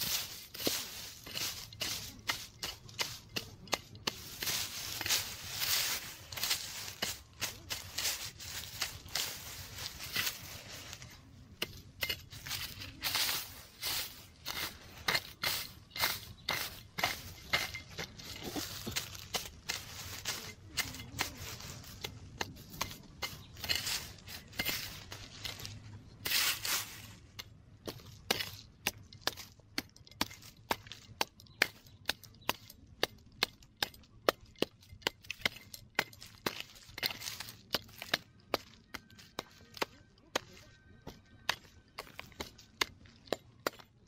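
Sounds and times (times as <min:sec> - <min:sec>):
earth scraping: 0:00.0 - 0:44.0
hoe chopping into dry soil: 0:11.6 - 0:26.8.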